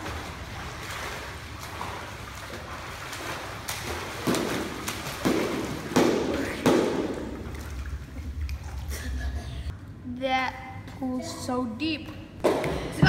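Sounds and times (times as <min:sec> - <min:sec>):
swimmer splashing in pool water: 0:00.0 - 0:08.9.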